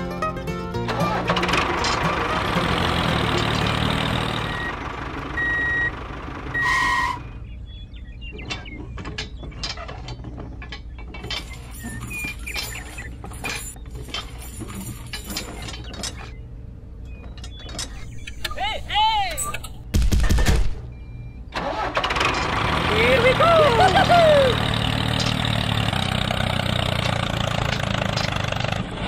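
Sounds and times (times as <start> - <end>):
metal chain clinking and rattling: 9.1 - 16.4.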